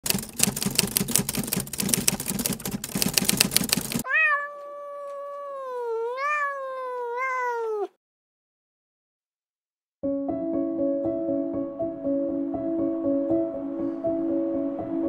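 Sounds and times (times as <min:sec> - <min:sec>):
keyboard typing clicks: 0:00.0 - 0:04.0
cat meowing: 0:04.0 - 0:08.0.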